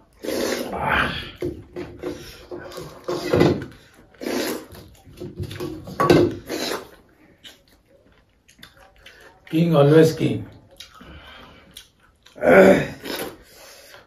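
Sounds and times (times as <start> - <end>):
slurping and mouth-smacking: 0.0 - 0.9, 2.6 - 5.6, 6.4 - 9.5, 10.7 - 14.0.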